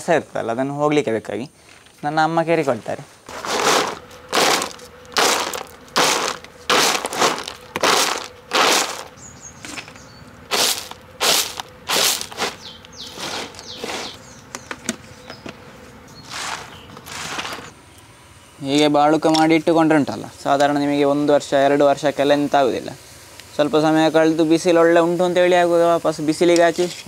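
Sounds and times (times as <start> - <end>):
dry chips swishing in a tray: 3.3 - 9.1, 10.5 - 14.2.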